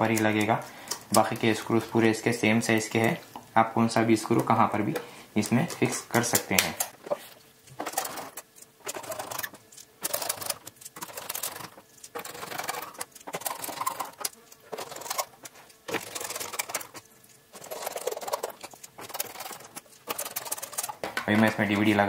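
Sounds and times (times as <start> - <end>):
screwdriver rapid clicking: 7.8 - 15.3, 17.6 - 21.0.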